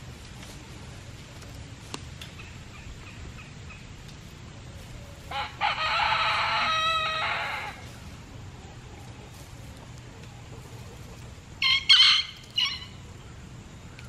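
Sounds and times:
chickens clucking softly: 0:00.3 - 0:13.8
rooster crowing: 0:05.2 - 0:08.0, 0:11.6 - 0:13.0.

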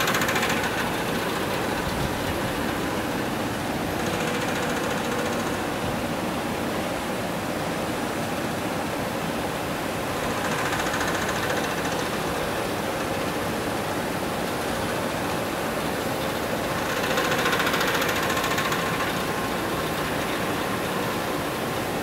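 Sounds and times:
printing machine running: 0:00.0 - 0:22.0.

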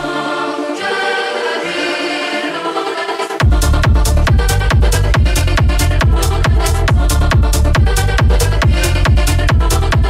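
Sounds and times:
layered synth: 0:00.0 - 0:10.0
hard kick drum beat: 0:03.4 - 0:10.0.

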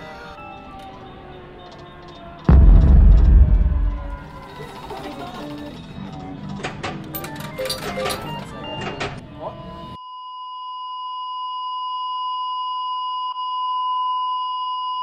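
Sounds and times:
soundtrack music: 0:02.5 - 0:04.4.

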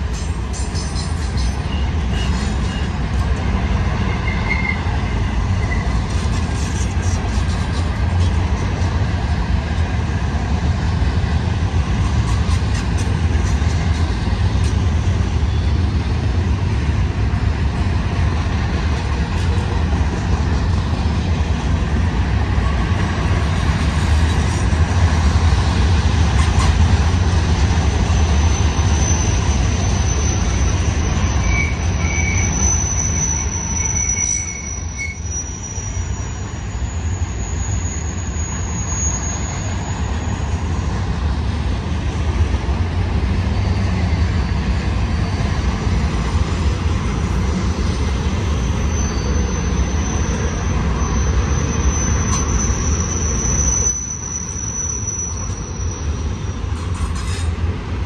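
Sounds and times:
freight train wheels rumbling: 0:00.0 - 0:58.0
high wheel squeal: 0:00.1 - 0:03.1, 0:04.0 - 0:09.0, 0:12.0 - 0:16.1, 0:22.5 - 0:41.5, 0:43.1 - 0:57.6.

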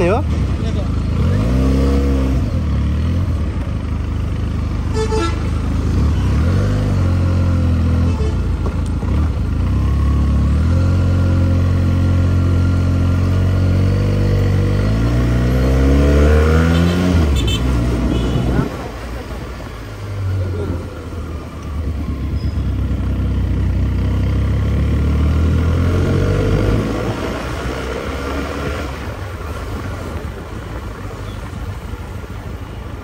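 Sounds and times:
motorcycle engine: 0:00.0 - 0:33.0
horn toot: 0:04.9 - 0:05.6, 0:16.4 - 0:18.7.

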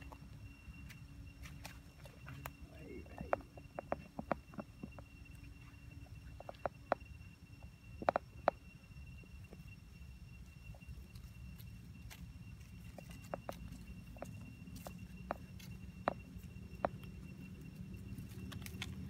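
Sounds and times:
dry leaves and twigs crackling: 0:00.0 - 0:19.0
faint steady high tone: 0:00.0 - 0:19.0
twigs cracking: 0:18.0 - 0:19.0.

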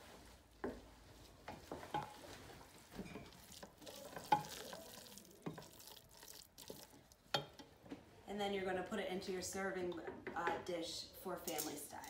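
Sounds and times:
spoon stirring sticky risotto: 0:01.6 - 0:07.8.

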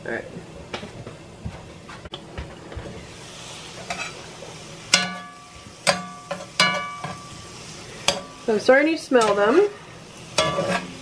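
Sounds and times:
mushrooms sizzling in oil: 0:02.6 - 0:11.0
metal spatula stirring in skillet: 0:03.2 - 0:11.0
metal-on-metal clanks: 0:10.4 - 0:11.0.

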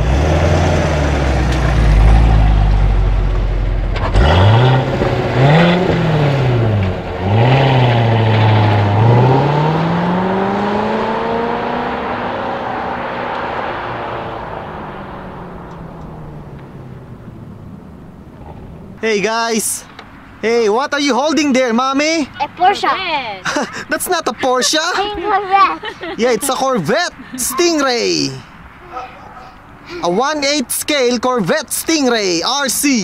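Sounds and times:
sports car engine accelerating: 0:00.0 - 0:19.0.

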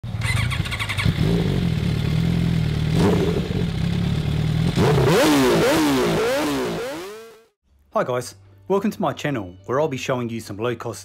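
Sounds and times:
motorcycle engine running and revving: 0:00.0 - 0:07.6.

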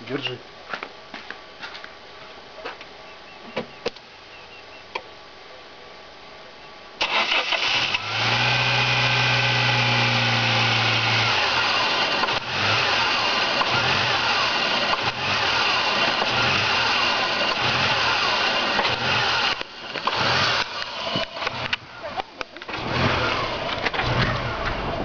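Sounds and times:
car engine starting and idling: 0:07.0 - 0:25.0.

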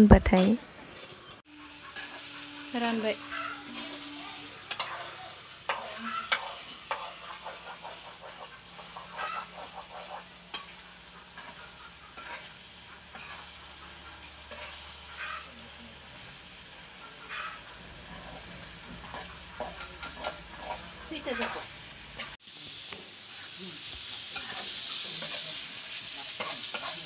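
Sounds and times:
frying sizzle: 0:00.0 - 0:27.0
spatula scraping steel pan: 0:00.4 - 0:15.5, 0:17.2 - 0:22.4.

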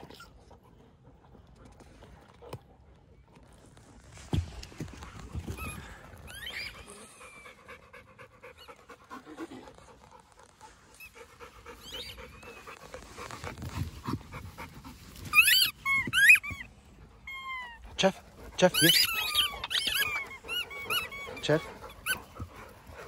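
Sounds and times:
dog panting: 0:00.0 - 0:23.0
high squeaks: 0:18.7 - 0:22.3.

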